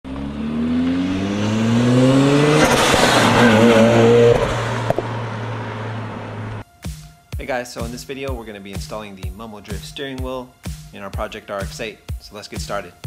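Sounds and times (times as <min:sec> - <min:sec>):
car engine accelerating: 0:00.0 - 0:06.6.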